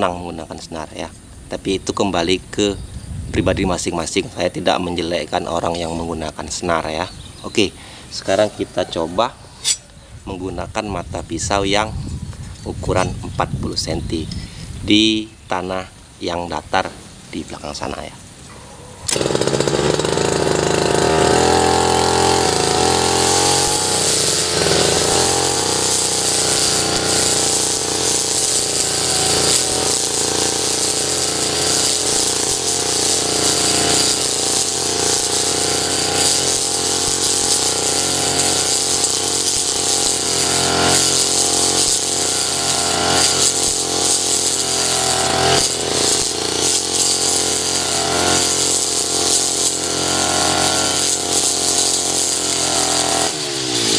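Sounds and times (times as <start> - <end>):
metal blade cutting grass: 1.6 - 14.4, 16.8 - 53.9
brush cutter engine running: 19.0 - 53.9.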